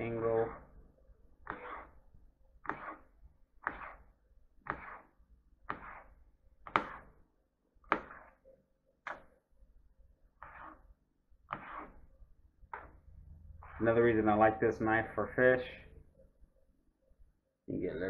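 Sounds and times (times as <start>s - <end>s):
knife cutting fish on board: 1.4s - 1.9s, 2.6s - 4.0s, 4.6s - 6.1s, 6.7s - 7.1s, 7.9s - 8.4s, 11.5s - 12.0s.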